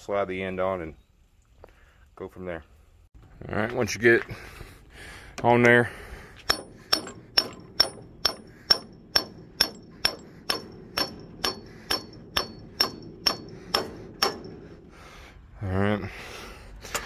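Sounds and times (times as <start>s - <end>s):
hammer blows on steel: 6.4s - 15.1s.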